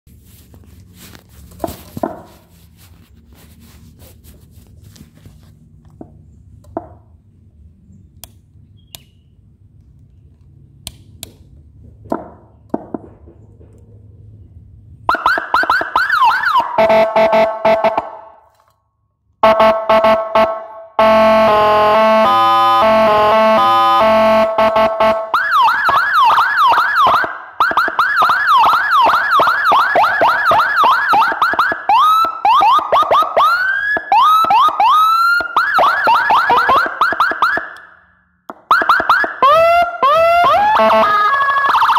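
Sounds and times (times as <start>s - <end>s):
electronic siren: 15.1s - 18.4s, 19.4s - 41.9s.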